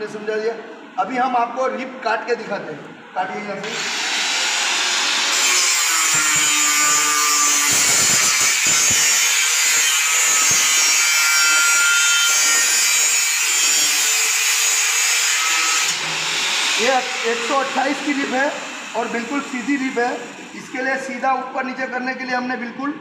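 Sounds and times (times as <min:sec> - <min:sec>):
angle grinder cutting steel: 0:03.6 - 0:20.6.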